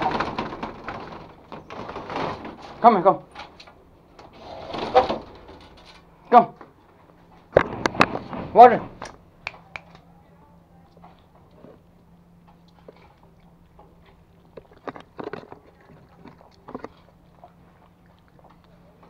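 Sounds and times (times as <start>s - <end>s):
puppies lapping water: 12.7s - 19.0s.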